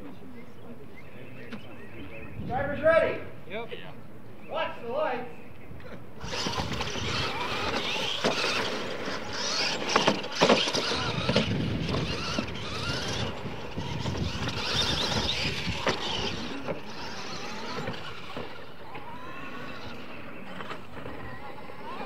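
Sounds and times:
tyres on dirt: 5.5s - 22.0s
toy truck motors whining: 5.8s - 22.0s.

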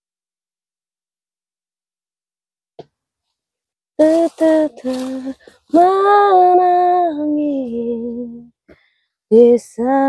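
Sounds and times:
woman singing unaccompanied: 4.0s - 8.6s, 9.3s - 10.0s.

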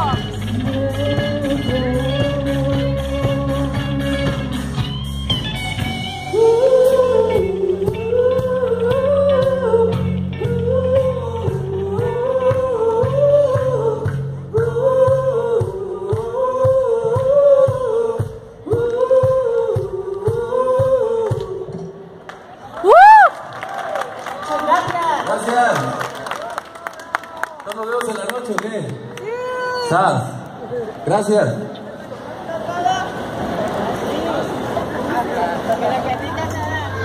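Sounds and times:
live rock band playing: 0.0s - 12.2s
person singing a melodic phrase: 6.2s - 21.8s.

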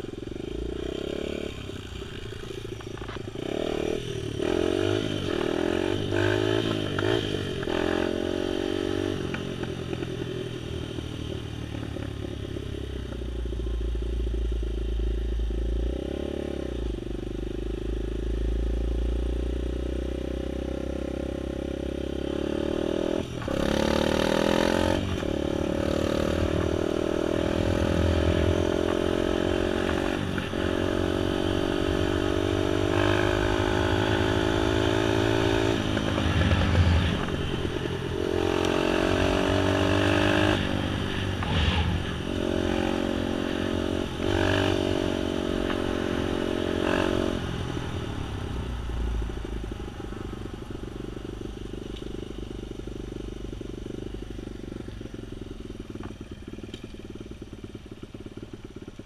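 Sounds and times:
road noise: 0.0s - 59.0s
small vehicle engine revving: 20.6s - 52.8s.

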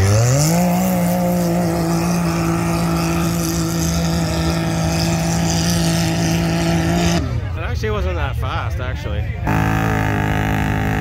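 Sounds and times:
atv engine at full throttle: 0.0s - 11.0s.

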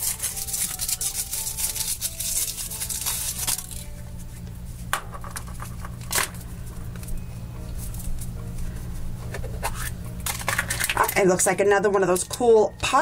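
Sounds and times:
foil wrapper crinkling: 0.0s - 4.7s, 9.7s - 11.2s
soft background music: 0.0s - 13.0s.

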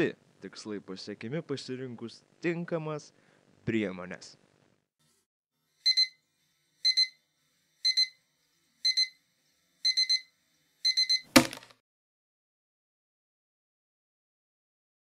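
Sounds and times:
electronic alarm clock beeping: 5.8s - 6.2s, 6.8s - 7.2s, 7.8s - 8.2s, 8.8s - 9.2s, 9.8s - 11.3s.

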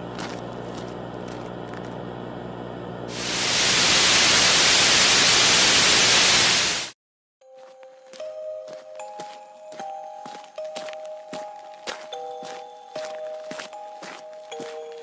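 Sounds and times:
loud static hiss: 3.1s - 7.0s.

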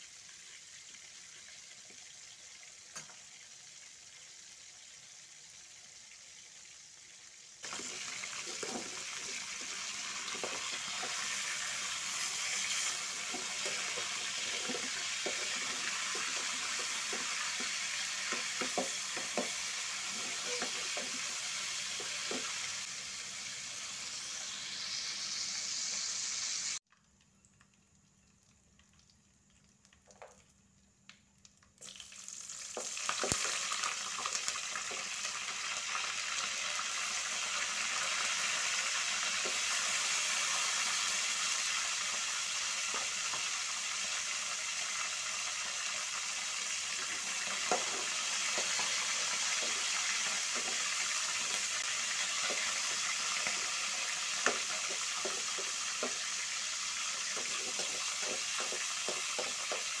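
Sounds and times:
spices sizzling in hot oil: 0.0s - 60.0s
metal spatula scraping a pan: 7.7s - 22.6s, 57.3s - 59.8s.

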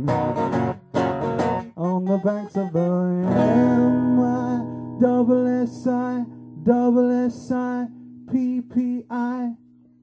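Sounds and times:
man singing syllables: 1.7s - 9.6s
acoustic guitar chord ringing: 2.8s - 10.0s.

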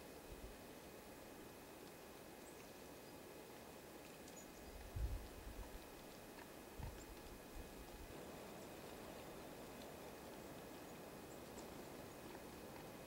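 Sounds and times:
faint steady hiss: 0.0s - 13.0s
faint high ticks: 1.2s - 8.0s.

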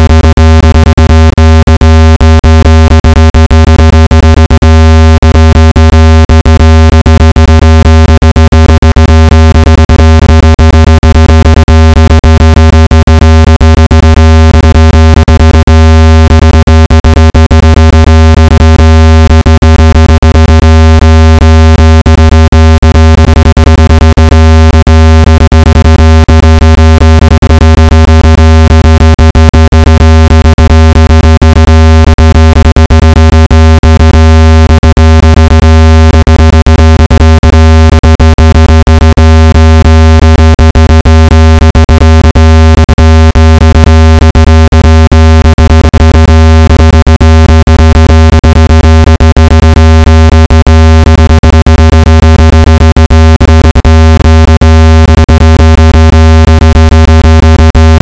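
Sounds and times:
low electronic buzzing tone: 0.0s - 4.6s, 19.2s - 46.0s.

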